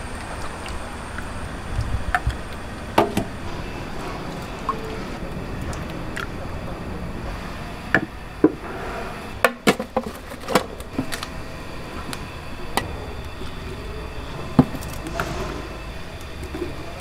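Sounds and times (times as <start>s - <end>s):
kitchen hum: 0.0s - 17.0s.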